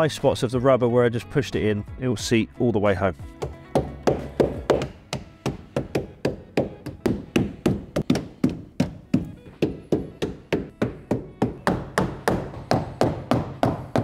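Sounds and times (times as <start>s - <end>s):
rubber mallet striking rubber seal: 3.4s - 14.0s.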